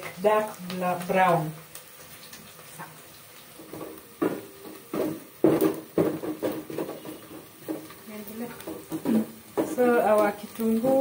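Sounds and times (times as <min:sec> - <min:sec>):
onions frying: 0:00.0 - 0:11.0
wooden spoon knocking metal pot: 0:03.6 - 0:10.3.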